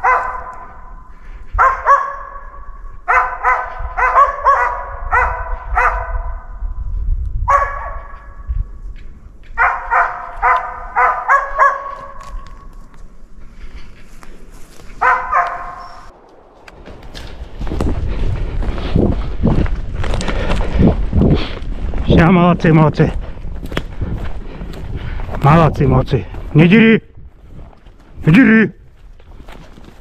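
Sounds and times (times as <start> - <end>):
dog barking: 0.0 - 0.9, 1.6 - 6.5, 7.5 - 8.3, 9.6 - 12.2, 15.0 - 16.0.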